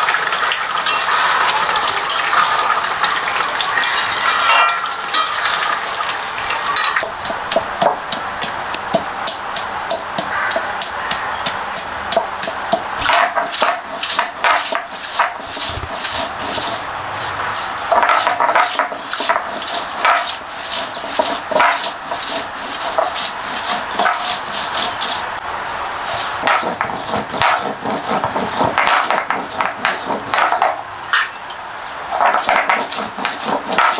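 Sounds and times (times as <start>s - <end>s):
stone grinding garlic: 7.0s - 16.9s, 17.9s - 25.3s, 26.1s - 30.8s, 32.1s - 33.9s.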